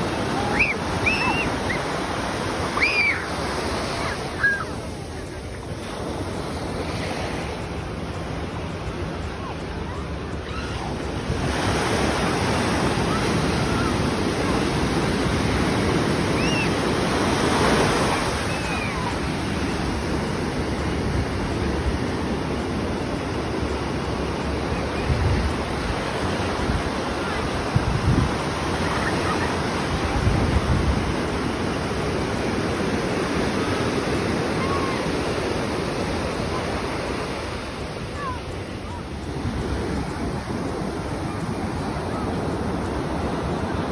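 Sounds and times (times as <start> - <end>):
ocean surf breaking: 0.0 - 43.9.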